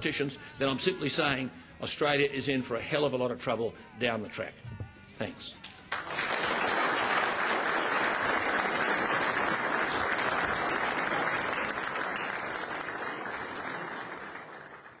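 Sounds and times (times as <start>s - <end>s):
audience applauding: 5.9s - 15.0s.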